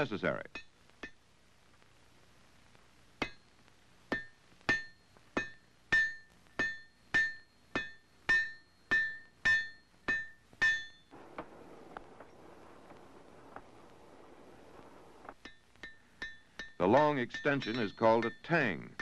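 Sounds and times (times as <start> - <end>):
hammer striking iron on anvil: 3.2 - 3.4, 4.1 - 11.1, 15.4 - 19.0.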